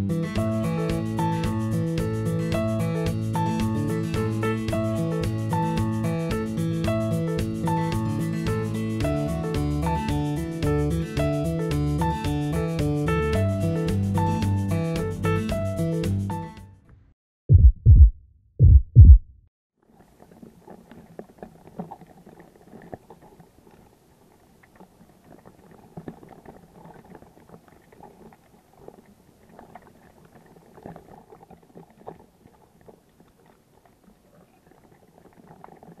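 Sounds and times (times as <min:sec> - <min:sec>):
low thumps: 0:17.5 - 0:19.4
underwater crackling and clicking: 0:19.9 - 0:36.0.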